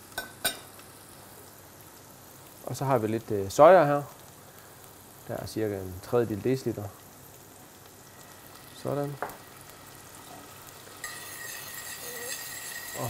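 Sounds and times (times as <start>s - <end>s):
sauce sizzling in a saucepan: 0.0s - 13.0s
spoon stirring in a saucepan: 10.3s - 13.0s.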